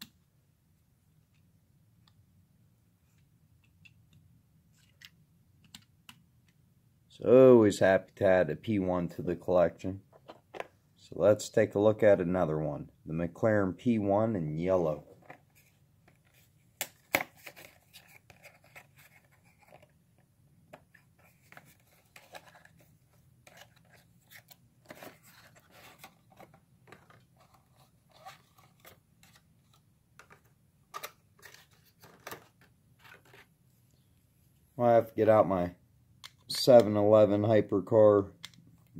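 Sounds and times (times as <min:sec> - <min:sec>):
box handled with clicks and crinkles: 0:15.0 - 0:33.5.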